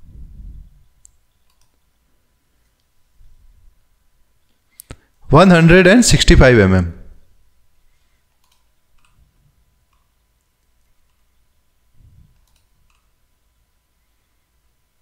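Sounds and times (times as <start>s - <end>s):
computer mouse clicks: 1.0s - 1.8s, 8.3s - 9.3s, 9.9s - 11.3s, 12.3s - 13.2s.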